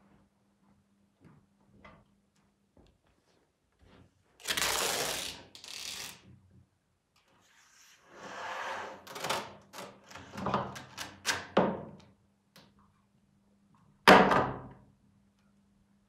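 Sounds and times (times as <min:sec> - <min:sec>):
wooden strip scraping over board: 0:07.4 - 0:09.2.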